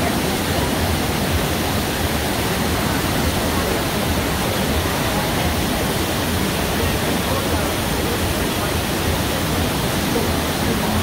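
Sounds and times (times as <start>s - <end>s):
river rushing: 0.0s - 11.0s.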